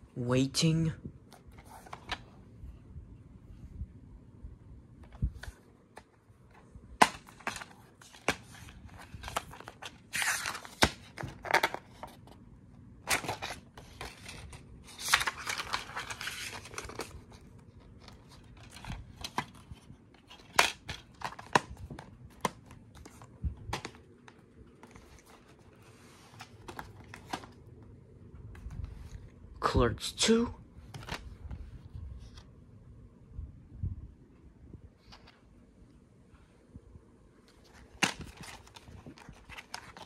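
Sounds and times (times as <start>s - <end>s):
rustling and scraping: 13.1s - 27.6s, 37.4s - 40.0s.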